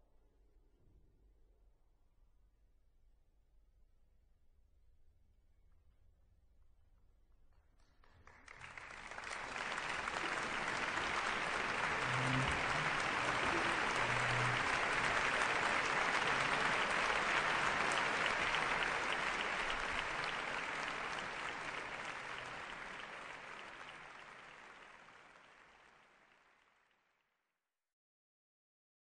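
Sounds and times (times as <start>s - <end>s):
audience applauding: 8.2s - 27.0s.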